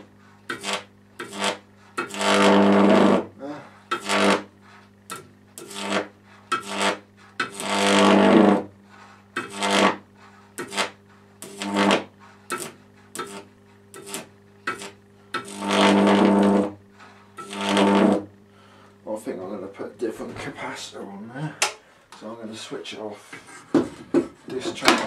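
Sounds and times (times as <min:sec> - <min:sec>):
electric arc crackling buzz: 0:00.0 - 0:21.1
transformer mains hum: 0:00.0 - 0:25.0.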